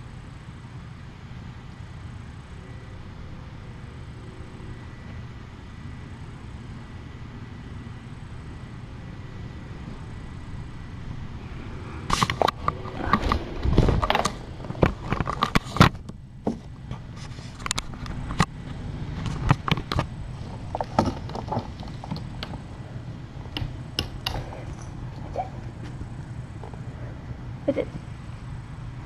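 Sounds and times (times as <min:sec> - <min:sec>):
clicks and light scrapes: 0:12.1 - 0:22.6
webcam handling knocks and rubbing: 0:19.2 - 0:22.7.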